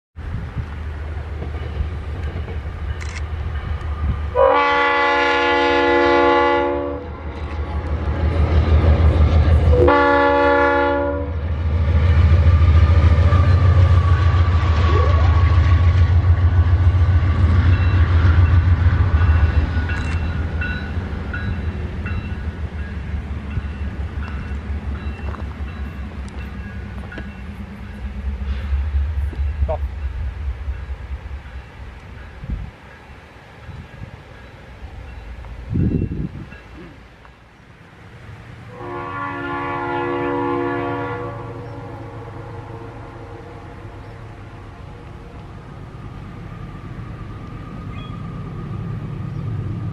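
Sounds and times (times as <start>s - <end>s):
locomotive air horn blasts: 4.3s - 7.2s, 9.7s - 11.4s, 38.7s - 44.0s.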